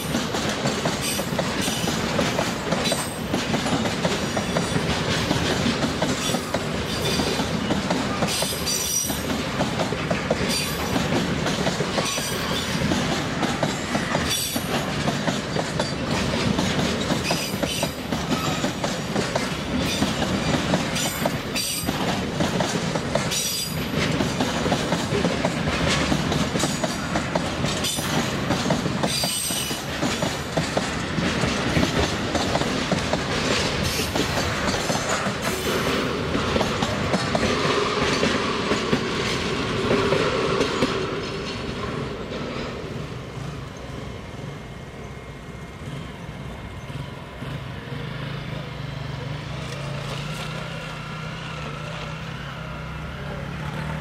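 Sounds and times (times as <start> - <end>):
train wheels clicking over rail joints: 0.0 - 54.0
wheel squeal: 17.2 - 18.8.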